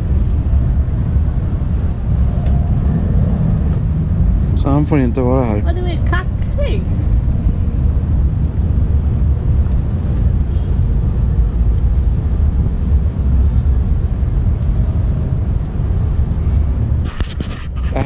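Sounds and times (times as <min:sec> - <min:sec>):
low outdoor rumble: 0:00.0 - 0:18.0
night insects trilling: 0:00.0 - 0:18.0.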